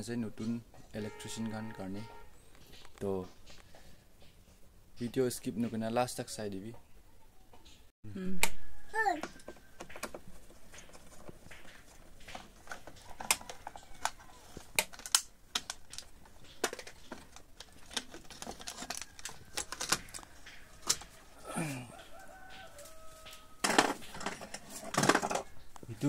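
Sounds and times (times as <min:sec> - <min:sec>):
rustling: 0:09.4 - 0:26.0.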